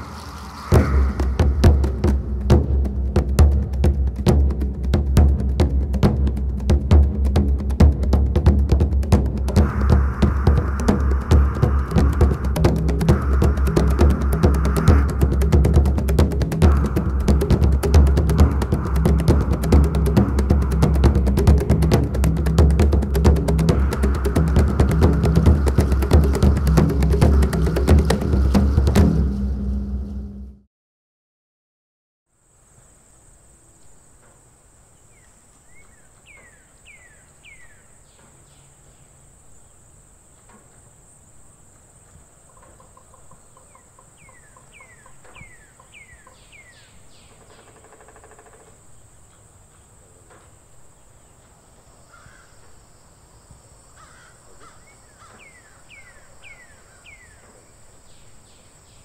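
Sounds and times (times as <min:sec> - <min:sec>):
birds chirping: 0:00.0 - 0:30.2, 0:33.2 - 0:59.0
rapid rattle of notes: 0:00.0 - 0:30.5
insect drone: 0:00.0 - 0:30.6, 0:32.3 - 0:35.8, 0:38.5 - 0:59.0
harsh buzzy call: 0:09.1 - 0:30.4.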